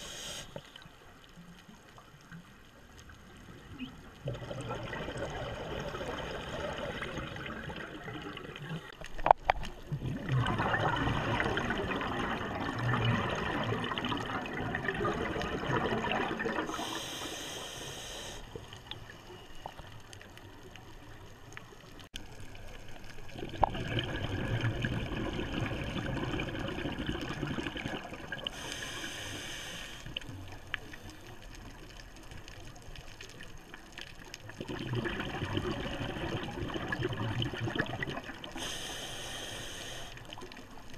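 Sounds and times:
hissing inhale through regulator: 0.0s - 0.8s, 16.6s - 18.8s, 28.5s - 30.3s, 38.4s - 40.4s
exhaled bubbles underwater: 3.2s - 17.2s, 22.8s - 29.3s, 30.1s - 40.9s.

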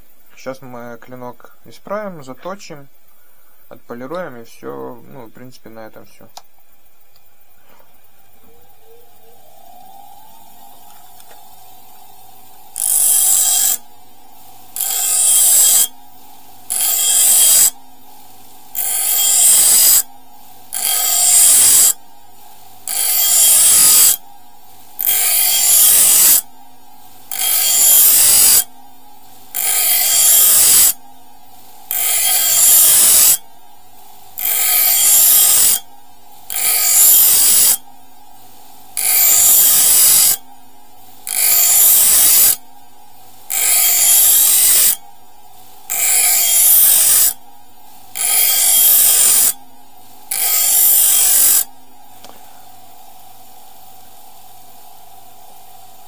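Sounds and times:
bench grinder humming: 8.2s - 17.8s, 18.6s - 22.0s, 22.7s - 24.3s, 24.9s - 26.5s, 27.2s - 33.4s, 34.3s - 35.9s, 36.5s - 37.9s, 39.0s - 40.4s, 41.2s - 42.6s, 43.4s - 45.1s, 45.8s - 47.4s, 48.1s - 49.6s, 50.3s - 52.4s
blade grinding on wheel: 12.8s - 13.8s, 14.7s - 15.9s, 16.6s - 17.8s, 18.7s - 20.1s, 20.7s - 22.0s, 22.8s - 24.2s, 25.0s - 26.5s, 27.3s - 28.7s, 29.5s - 31.0s, 31.9s - 33.4s, 34.4s - 35.8s, 36.5s - 37.8s, 39.0s - 40.4s, 41.3s - 42.6s, 43.5s - 45.0s, 45.9s - 47.4s, 48.1s - 49.6s, 50.3s - 51.7s.

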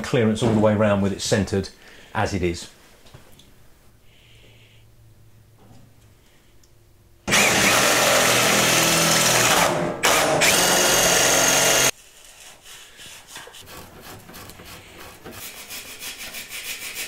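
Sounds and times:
cordless drill running: 7.3s - 11.9s.

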